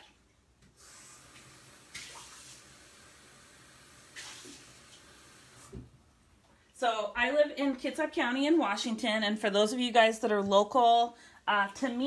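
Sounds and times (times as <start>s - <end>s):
tap water running into sink: 0.6s - 6.0s.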